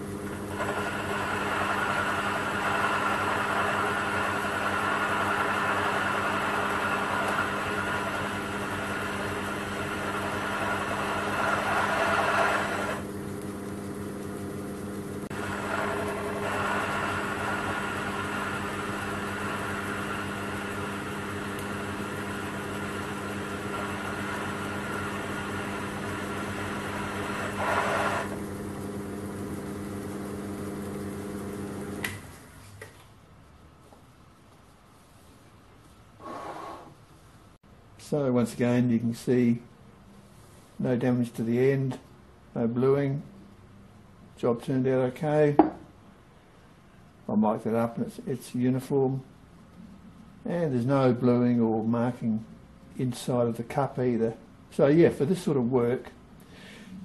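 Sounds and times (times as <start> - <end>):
metal lathe motor hum: 0.0 - 32.4.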